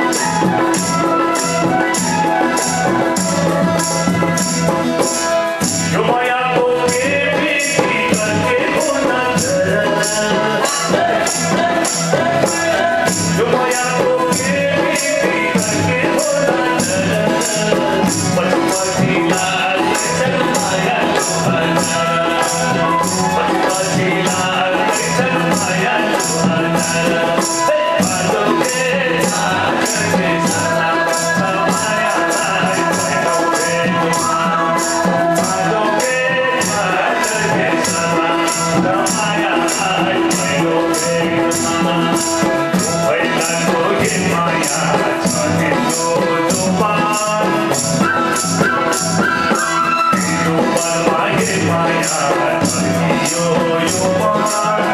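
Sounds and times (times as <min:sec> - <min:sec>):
bamboo flutes: 0:00.0 - 0:06.1, 0:47.8 - 0:50.7
harmonium: 0:00.0 - 0:54.9
high jingling percussion: 0:00.0 - 0:54.9
man singing into microphone: 0:00.0 - 0:54.9.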